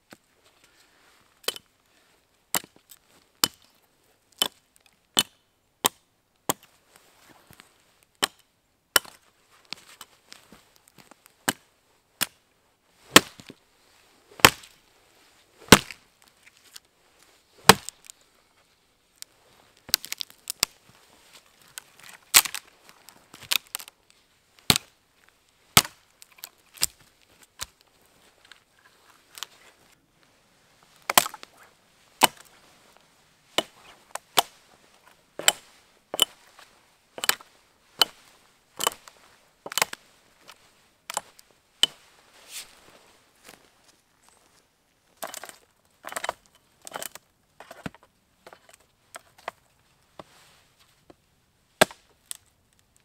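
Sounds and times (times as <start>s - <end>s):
axe chopping log: 2.5s - 2.8s, 3.4s - 3.6s, 5.2s - 6.7s, 9.0s - 9.2s, 13.1s - 13.5s, 14.4s - 14.7s, 15.6s - 16.0s, 17.6s - 17.9s, 24.7s - 24.9s, 25.8s - 26.0s, 31.0s - 31.5s, 32.2s - 32.5s, 33.6s - 34.5s, 35.4s - 35.6s, 37.2s - 37.4s, 38.0s - 38.2s, 39.7s - 40.0s, 51.8s - 52.1s.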